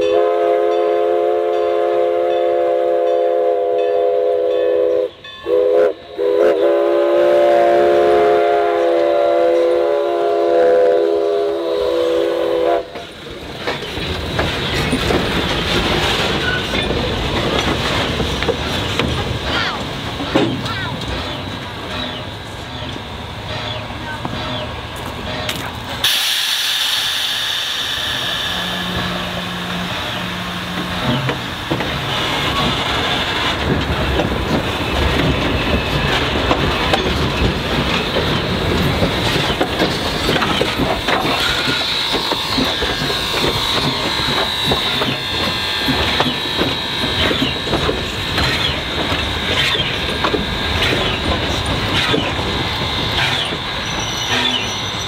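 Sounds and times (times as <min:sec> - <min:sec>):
train wheels clicking and clanking: 0:11.9 - 0:55.0
high wheel squeals on rail: 0:13.8 - 0:17.4, 0:20.3 - 0:33.7, 0:34.4 - 0:55.0.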